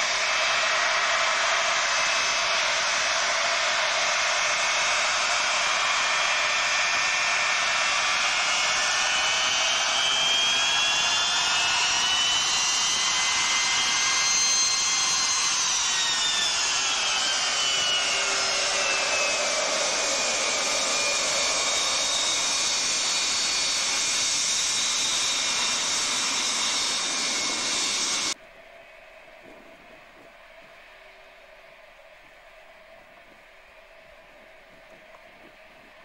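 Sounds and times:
jet engine rush: 0.0 - 28.4.

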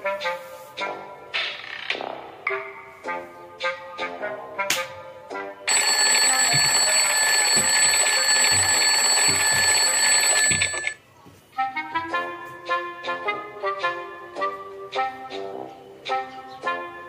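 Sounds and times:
continuous ringing bell: 5.7 - 11.0.

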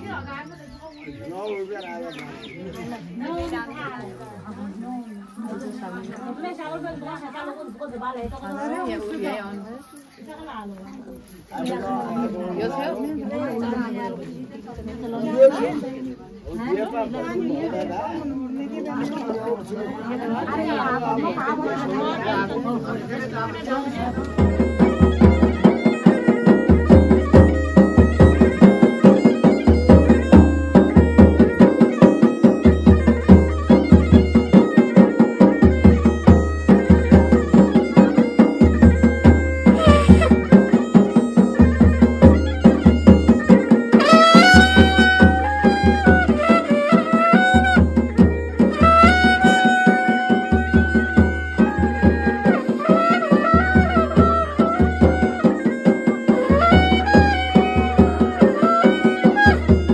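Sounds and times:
reed-like melody: 16.9 - 59.9
steady drum beat: 23.6 - 59.9
high held melody line: 23.9 - 59.9.

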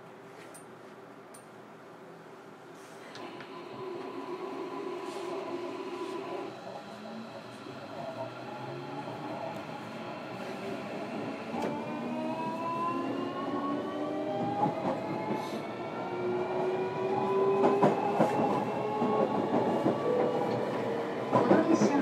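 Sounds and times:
electric train motor tones rising: 3.2 - 18.2
rail joint clicks: 11.5 - 11.8.

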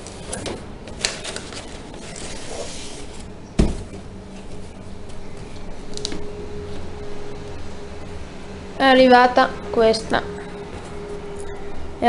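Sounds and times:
packing paper rustling: 0.0 - 3.3
cardboard being handled: 0.0 - 4.8
sharp thump: 3.6 - 4.0.

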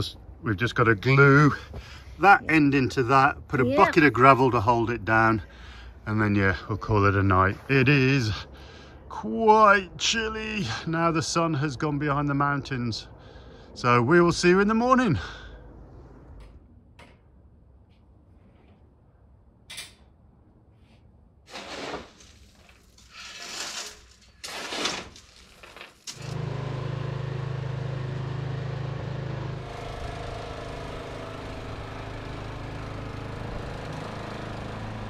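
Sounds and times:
scraping rustling noises: 20.7 - 26.0
small engine running: 26.0 - 35.0.

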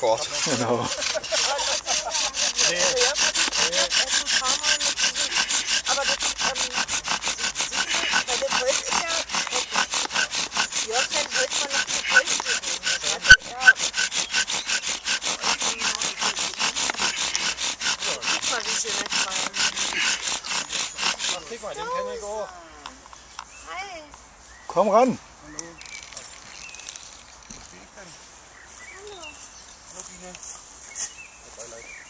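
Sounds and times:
bow drill spindle grinding: 0.0 - 22.4.

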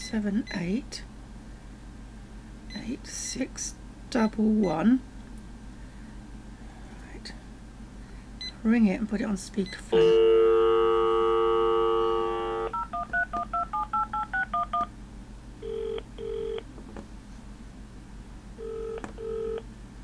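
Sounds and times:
phone dial tone: 9.9 - 14.9, 15.6 - 16.6, 18.6 - 19.6
touch-tone keypad beeps: 12.7 - 14.9.

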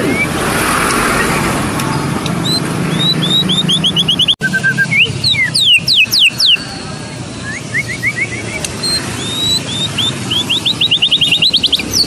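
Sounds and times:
passing vehicle: 0.0 - 12.0
bird singing whistled notes: 1.9 - 6.7, 7.3 - 12.0.

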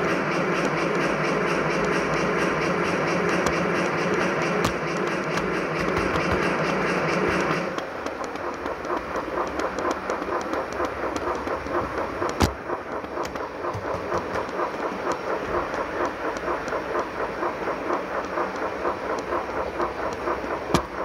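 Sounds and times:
model steam locomotive chuffs: 0.0 - 21.0
wheels rolling on rails: 0.0 - 21.0.

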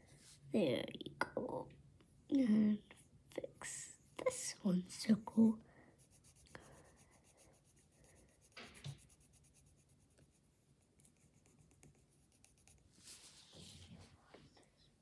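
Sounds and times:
pencil scratching on paper: 6.0 - 14.1.

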